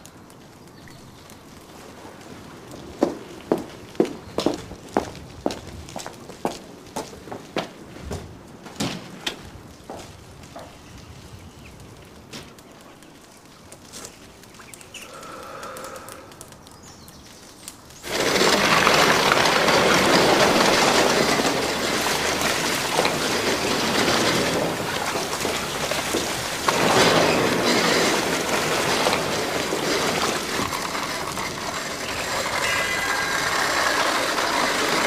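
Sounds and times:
steam and water hissing: 15.0 - 16.8, 18.0 - 35.0.

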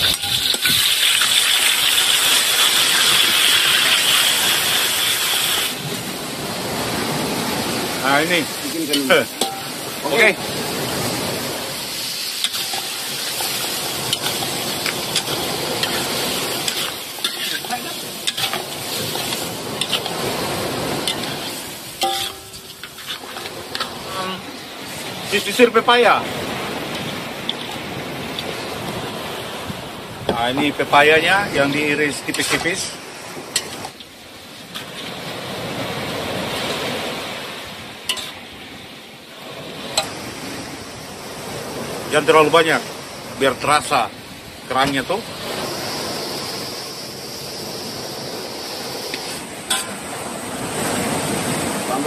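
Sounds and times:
metal spatula scraping wok: 0.0 - 1.4, 12.0 - 20.2, 21.0 - 25.0, 38.1 - 38.4, 49.2 - 50.0
shellfish sizzling in oil: 0.0 - 5.9, 7.9 - 26.1, 26.8 - 28.9, 31.0 - 35.7, 37.6 - 41.5, 45.2 - 51.6
metal spatula clinking on wok: 9.4 - 9.7, 22.0 - 23.1, 38.1 - 38.4.

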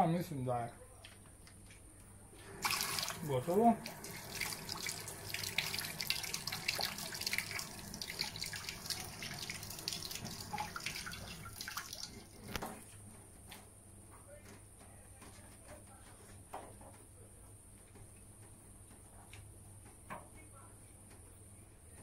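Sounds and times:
tap water splashing into sink: 2.4 - 12.8.

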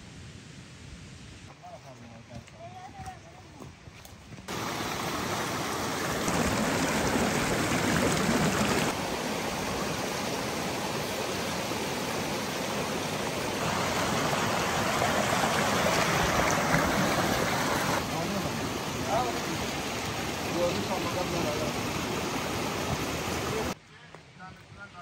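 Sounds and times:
water rushing: 4.5 - 23.8.

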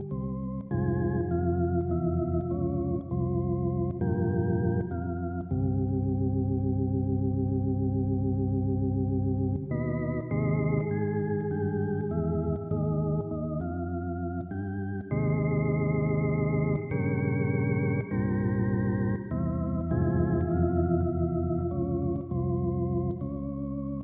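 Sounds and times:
organ music: 0.0 - 24.0.

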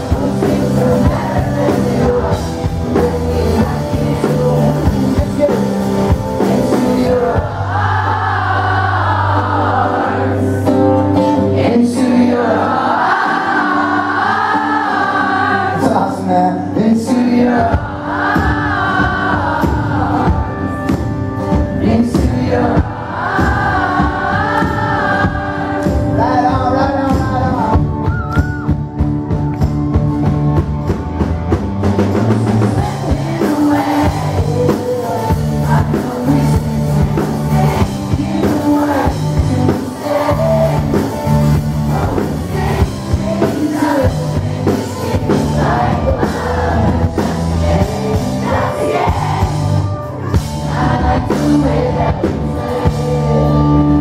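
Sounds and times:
man singing: 0.0 - 7.7, 11.6 - 12.8, 15.6 - 17.9, 21.7 - 23.0, 26.0 - 28.1, 32.4 - 49.1
electric bass: 0.0 - 12.5, 15.4 - 54.0
drums: 0.0 - 54.0.

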